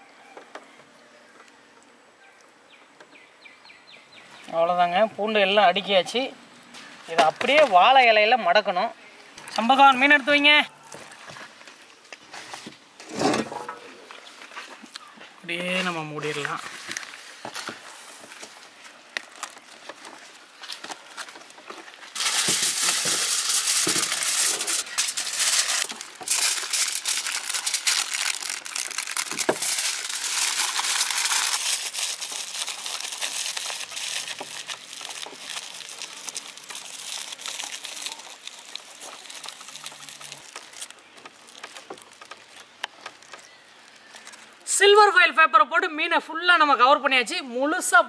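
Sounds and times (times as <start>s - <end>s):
aluminium foil crinkling: 9.4s - 12.6s, 16.0s - 44.7s.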